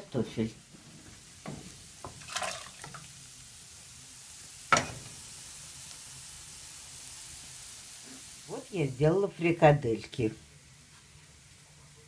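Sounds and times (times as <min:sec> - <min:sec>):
faint sizzle: 0:00.0 - 0:12.0
potatoes splashing into water: 0:02.2 - 0:03.1.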